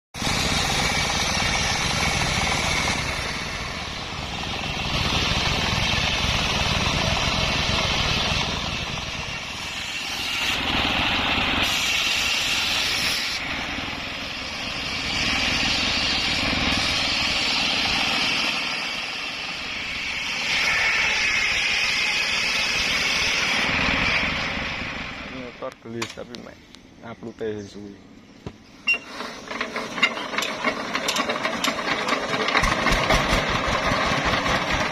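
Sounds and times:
circular saw cutting logs: 0.2 - 24.9
diesel engine running: 0.2 - 25.6, 28.5 - 34.9.

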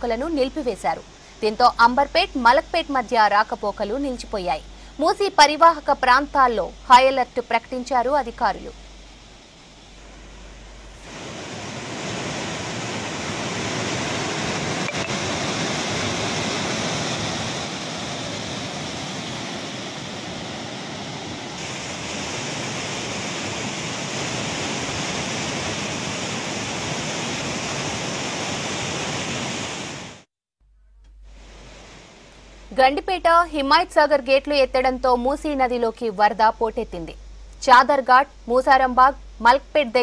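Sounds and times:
floodwater rushing torrent: 6.9 - 30.3.

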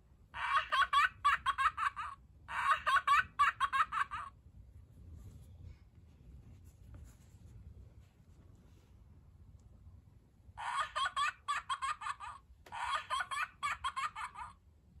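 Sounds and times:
toy voice box laughing: 0.4 - 4.3, 10.6 - 14.6.

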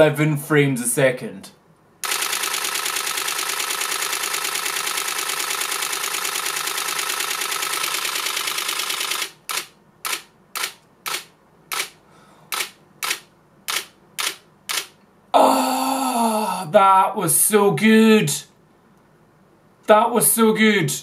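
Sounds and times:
camera shutter burst: 2.0 - 15.0.

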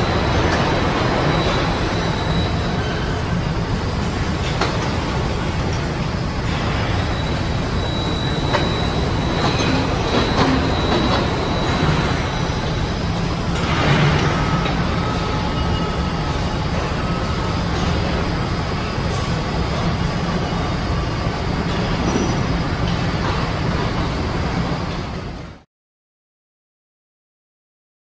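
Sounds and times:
machinery hum: 0.0 - 25.6.

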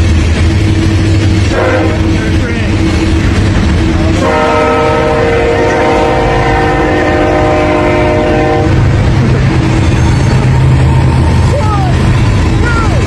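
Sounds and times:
freight train rumbling: 0.0 - 13.0
train horn blast: 1.4 - 2.3, 4.1 - 8.9.

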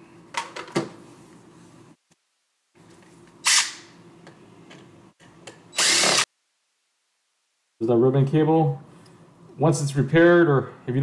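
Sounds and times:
cordless drill spinning: 5.8 - 6.3.

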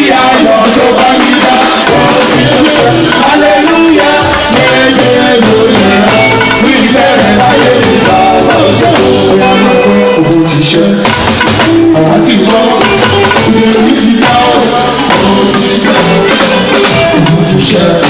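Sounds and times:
live band music: 0.0 - 18.0
man singing into a microphone: 0.0 - 18.0.

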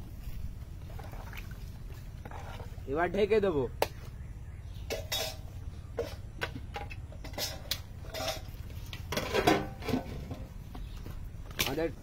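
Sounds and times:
metal lid clinking on pot: 4.9 - 5.4.

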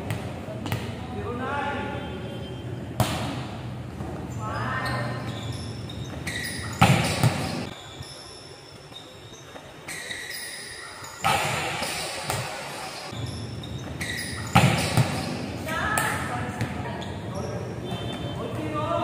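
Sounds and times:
volleyball being struck: 11.2 - 12.8.

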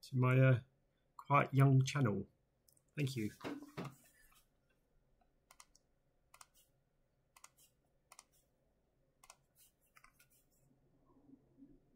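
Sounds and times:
computer clicking and tapping: 5.5 - 6.6, 7.4 - 8.4, 9.2 - 10.3.

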